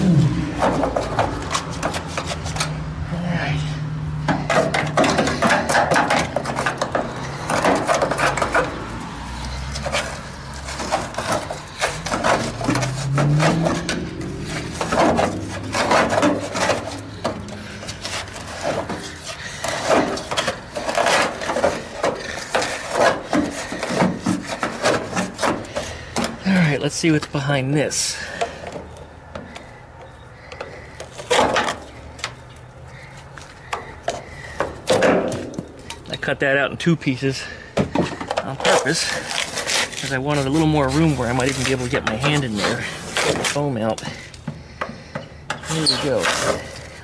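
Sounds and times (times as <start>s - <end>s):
screwdriver scraping foam and metal: 38.4s - 43.8s, 45.6s - 47.0s.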